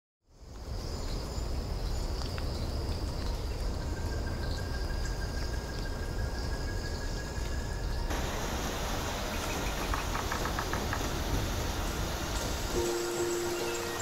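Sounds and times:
insects trilling: 0.3 - 14.0
thin high note: 12.8 - 14.0.

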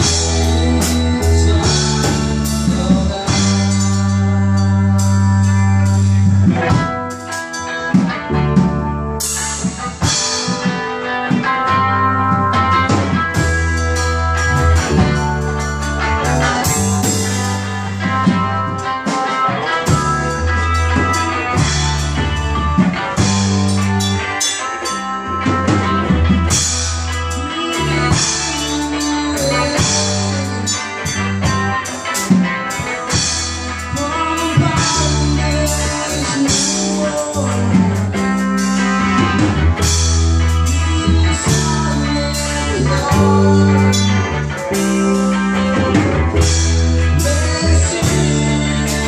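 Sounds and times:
amplified guitar: 0.0 - 49.0
deep bass notes: 0.0 - 49.0
drum kit playing: 0.0 - 49.0.

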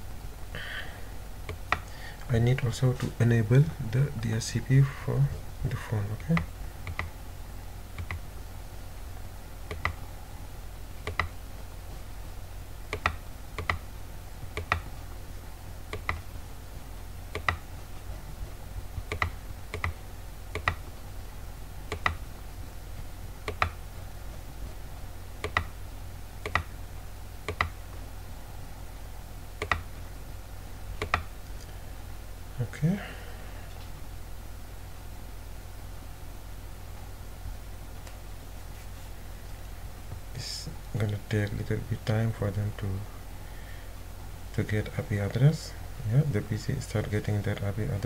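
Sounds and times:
steady low hum: 0.0 - 48.0
computer mouse clicking: 1.5 - 1.9, 6.3 - 7.1, 8.0 - 8.2, 9.7 - 10.0, 11.0 - 11.4, 12.9 - 13.8, 14.5 - 14.9, 15.9 - 16.2, 17.3 - 17.6, 19.0 - 20.8, 21.9 - 22.2, 23.4 - 23.8, 25.4 - 25.7, 26.4 - 26.7, 27.4 - 27.8, 29.6 - 29.9, 31.0 - 31.3.

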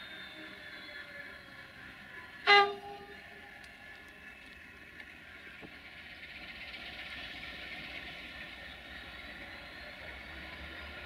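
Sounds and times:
diesel engine running: 0.2 - 11.0
locomotive horn toot: 2.4 - 3.2.

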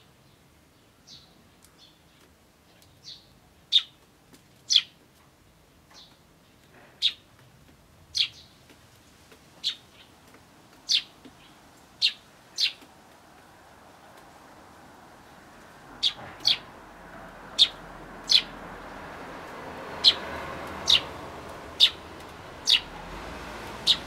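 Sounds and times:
sparrow chirping: 1.1 - 4.0, 4.7 - 5.0, 7.0 - 7.2, 8.1 - 8.6, 9.6 - 10.2, 10.8 - 12.9, 15.9 - 16.8, 17.5 - 18.6, 19.9 - 23.0, 23.7 - 24.0.

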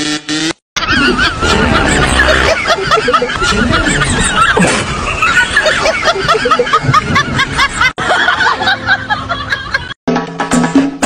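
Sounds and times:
high-pitched giggles: 0.8 - 7.2.

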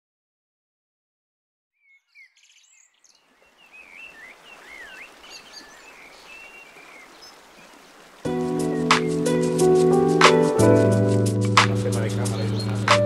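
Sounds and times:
birds singing: 1.8 - 10.4, 12.0 - 13.0
short whistled calls: 8.5 - 9.6.

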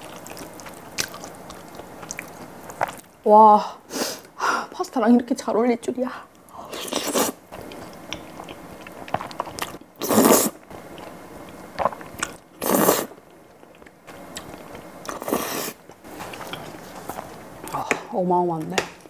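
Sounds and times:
quiet chewing: 0.0 - 3.1, 6.3 - 10.2, 10.9 - 18.0
loud noodle slurps: 10.0 - 10.6, 12.6 - 13.2, 15.1 - 15.8.

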